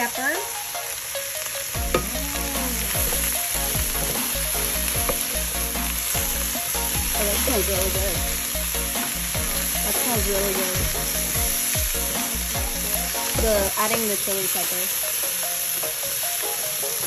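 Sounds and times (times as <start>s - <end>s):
vegetables sizzling in a pan: 0.0s - 17.0s.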